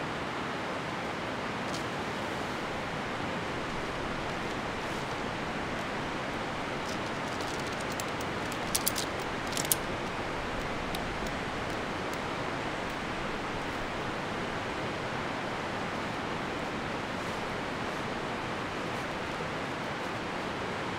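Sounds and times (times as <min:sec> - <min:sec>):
river rapids rushing: 0:00.0 - 0:20.9
tent pole sections clicking: 0:03.5 - 0:14.1.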